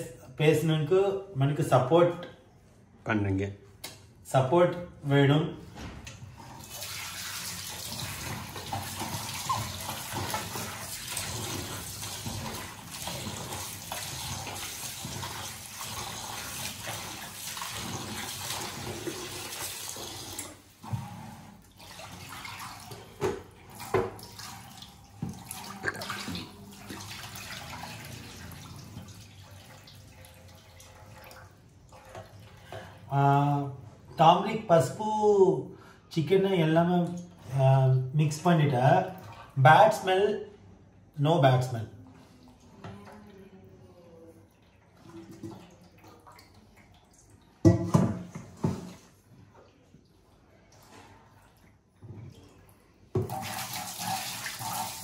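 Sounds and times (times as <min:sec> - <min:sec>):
water sloshing: 0:06.2 - 0:33.1
chicken being rubbed and washed: 0:06.7 - 0:20.4, 0:53.4 - 0:55.0
tap water running into steel bowl: 0:06.7 - 0:20.6, 0:53.1 - 0:55.0.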